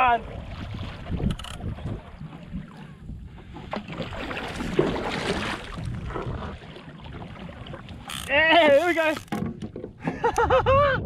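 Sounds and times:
paddle splashing in water: 0:00.0 - 0:10.3
wind on microphone: 0:00.2 - 0:07.8, 0:10.1 - 0:11.0.

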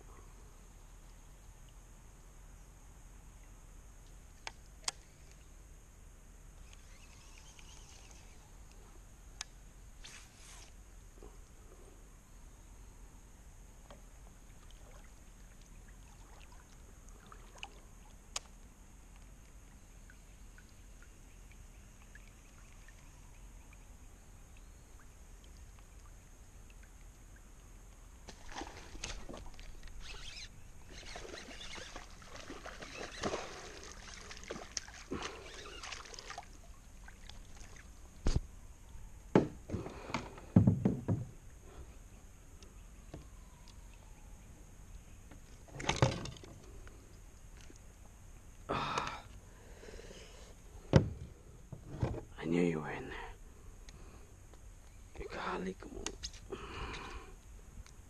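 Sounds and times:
water splashing: 0:14.5 - 0:18.3, 0:28.2 - 0:38.2.

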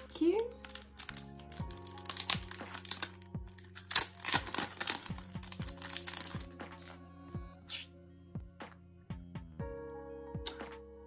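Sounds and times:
plastic sleeve crinkling: 0:00.0 - 0:07.0
soft background music: 0:00.0 - 0:11.0.

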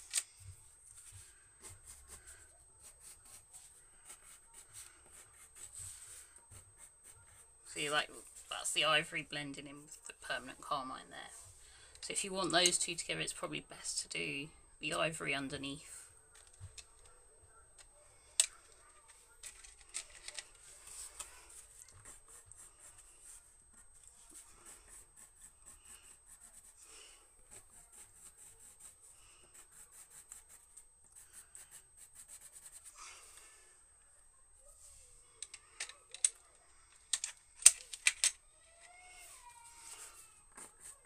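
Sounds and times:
pencil scratching on paper: 0:01.0 - 0:08.5, 0:20.8 - 0:26.8, 0:27.4 - 0:33.0, 0:39.2 - 0:41.0.

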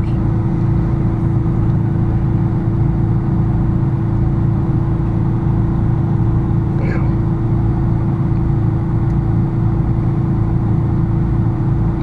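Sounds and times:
mechanical drone with low hum: 0:00.0 - 0:12.0.

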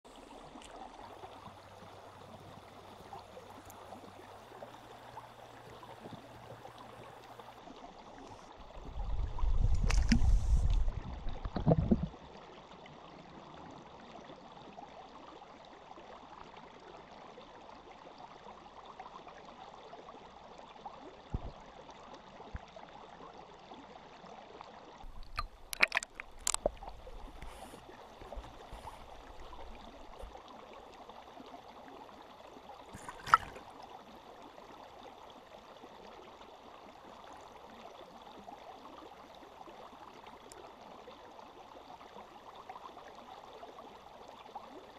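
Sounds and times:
muffled underwater flowing water: 0:00.1 - 0:44.9
low rumble with thumps: 0:08.8 - 0:12.2.

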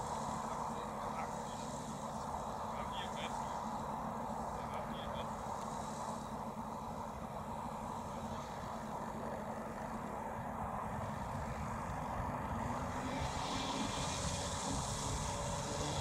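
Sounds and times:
model plane engines idling: 0:00.0 - 0:16.0.

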